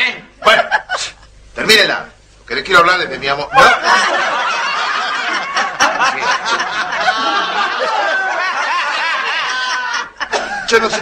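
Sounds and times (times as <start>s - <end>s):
audience laughing: 3.5s - 11.0s.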